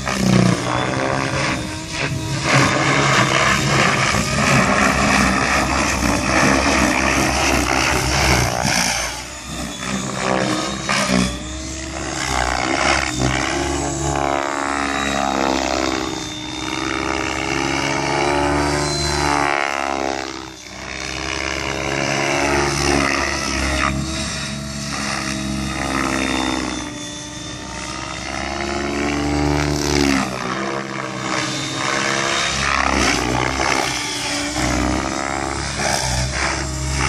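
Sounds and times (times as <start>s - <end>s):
helicopter motor whine: 0.0s - 37.0s
rotor blades whirring: 0.0s - 37.0s.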